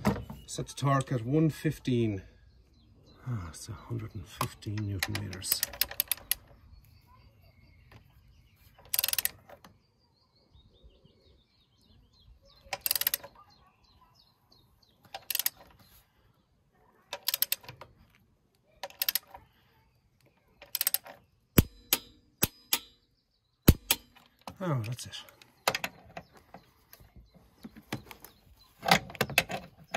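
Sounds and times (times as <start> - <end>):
torque wrench ratchet clicking: 5.4 - 6.4, 8.9 - 9.4, 12.8 - 13.3, 15.2 - 15.6, 17.2 - 17.7, 18.8 - 19.4, 20.6 - 22.9.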